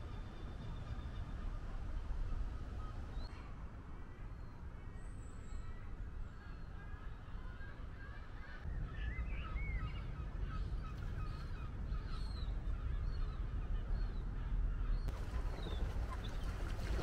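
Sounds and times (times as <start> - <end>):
steady low rumble: 8.6 - 17.0
waterbirds chirping and honking: 10.0 - 17.0.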